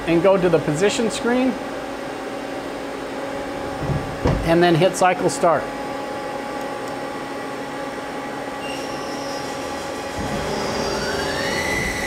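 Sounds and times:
machine hum: 0.0s - 12.0s
high machine whine: 5.5s - 12.0s.

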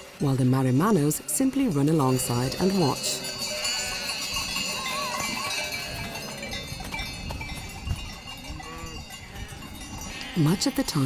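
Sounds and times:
sheep bleating: 8.5s - 11.0s.

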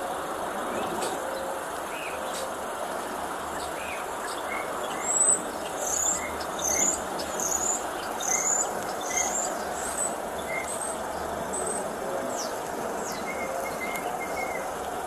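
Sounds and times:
steady background hiss: 0.0s - 15.0s
bird chirping: 3.6s - 14.7s.

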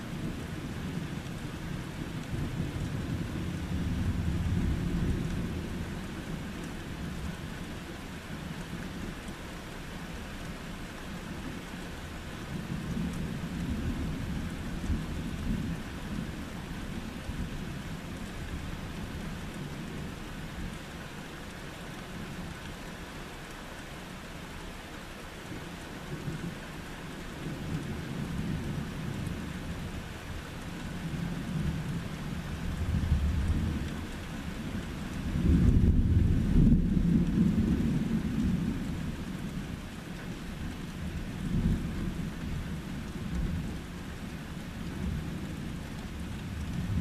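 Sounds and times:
steady rain falling: 0.0s - 47.0s
low rolling thunder: 31.0s - 39.8s, 45.0s - 47.0s.

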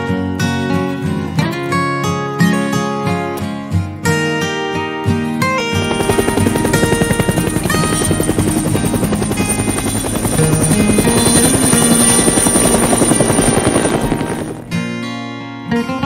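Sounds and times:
helicopter rotor chopping: 5.7s - 14.8s.

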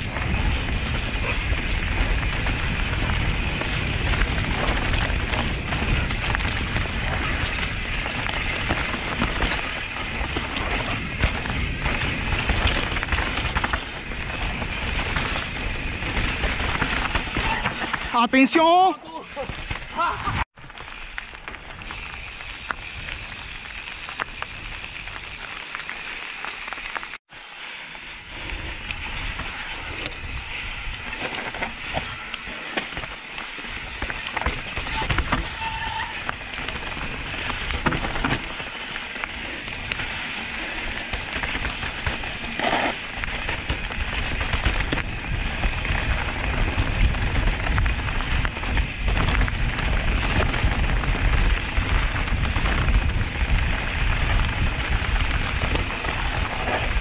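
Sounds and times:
tyres rolling over dirt and stones: 0.0s - 18.3s, 19.3s - 27.2s, 27.9s - 57.0s
bike clattering and rattling: 0.0s - 57.0s
wind on microphone: 43.1s - 57.0s.

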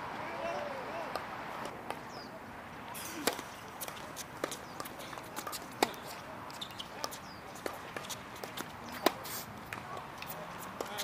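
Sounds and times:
tennis ball hits and bounces: 2.9s - 11.0s.

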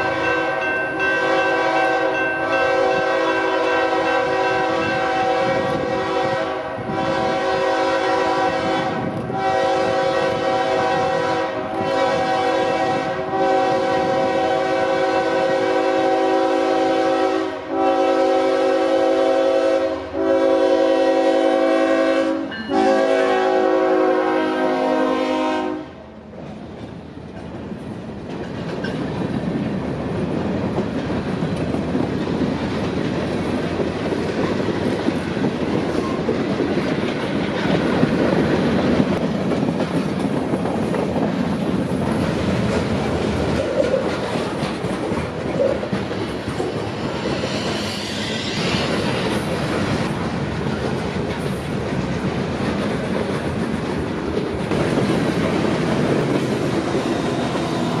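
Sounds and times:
locomotive air horn blasts: 0.0s - 26.0s.

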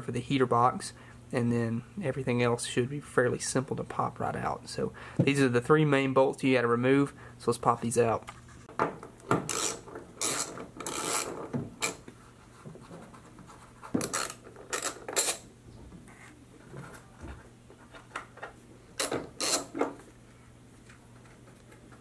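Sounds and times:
socket ratchet clicking: 9.5s - 12.0s, 19.0s - 19.7s.

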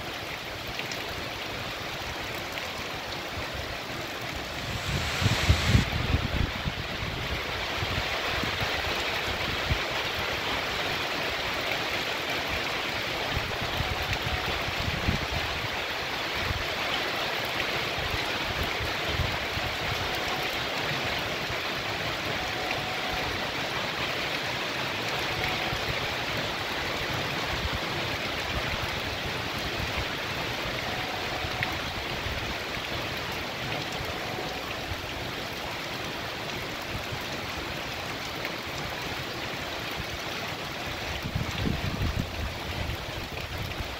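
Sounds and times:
heavy rain on trees and street: 0.0s - 43.9s.

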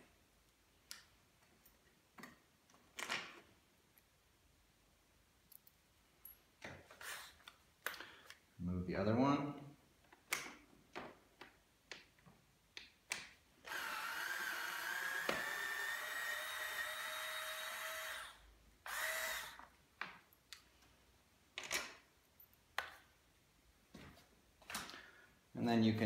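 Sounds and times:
electric screwdriver motor whine: 13.7s - 19.6s.

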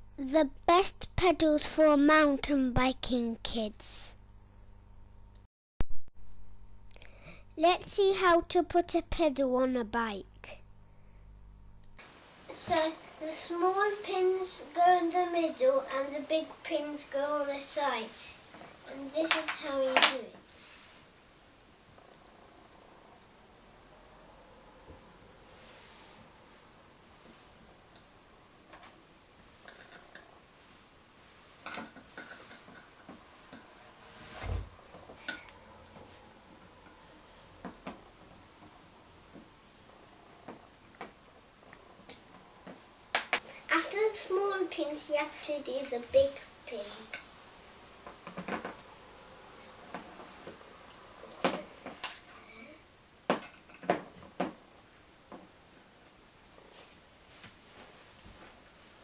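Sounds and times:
metal pins clicking and clinking: 29.6s - 30.3s, 31.6s - 33.7s, 53.3s - 54.0s.

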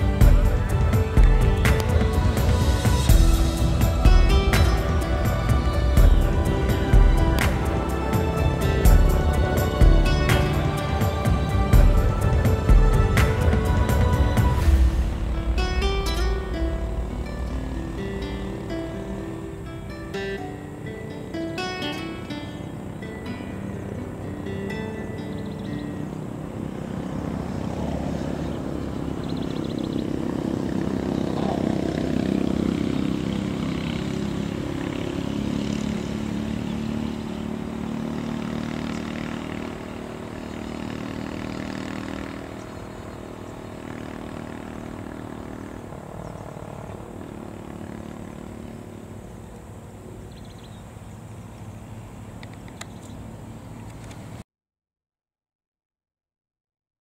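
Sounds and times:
boat engine running: 0.0s - 19.9s, 25.4s - 49.5s.

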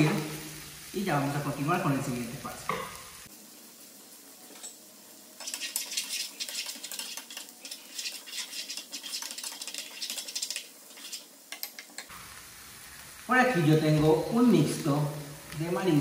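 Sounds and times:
vegetables frying in butter: 0.0s - 16.0s
spatula scraping frying pan: 5.4s - 12.1s.

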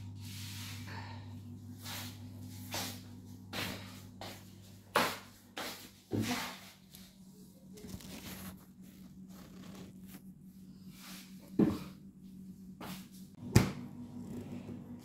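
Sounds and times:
low steady hum: 0.0s - 15.0s
faint rubbing and clicks: 7.7s - 10.4s.

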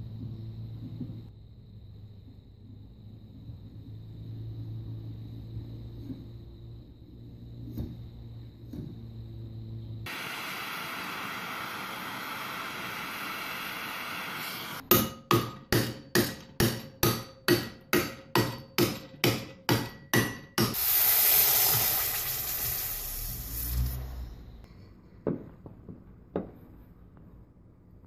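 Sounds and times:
steady hiss: 10.1s - 14.8s, 20.6s - 24.7s
hammer striking steel plate: 14.8s - 20.8s.

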